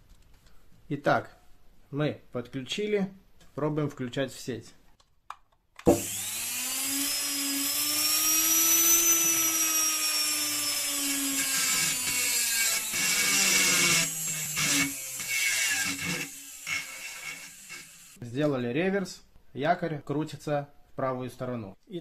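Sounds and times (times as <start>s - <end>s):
electric motor whining: 6.0s - 12.2s.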